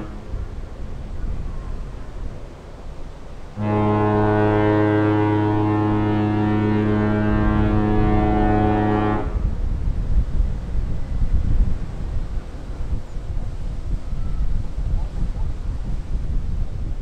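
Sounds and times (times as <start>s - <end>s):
ship's horn blast: 0.0s - 2.4s, 3.4s - 9.7s.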